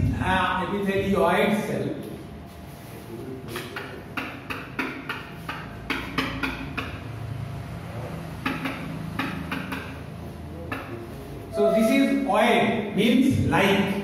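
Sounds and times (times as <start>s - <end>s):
marker writing on whiteboard: 3.5s - 7.0s, 8.4s - 12.2s.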